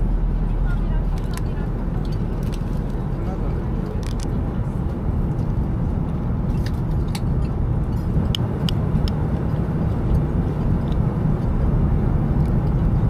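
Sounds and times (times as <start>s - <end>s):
airliner cabin rumble: 0.0s - 13.0s.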